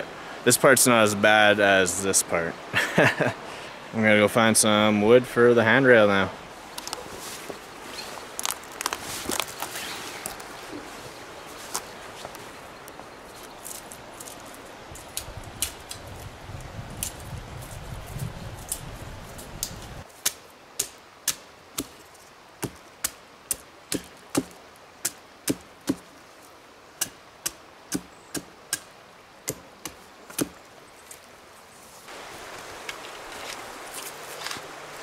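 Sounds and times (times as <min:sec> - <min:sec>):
hatchet chopping wood: 0:20.2 - 0:22.0, 0:22.6 - 0:26.1, 0:27.0 - 0:28.9, 0:29.5 - 0:30.6.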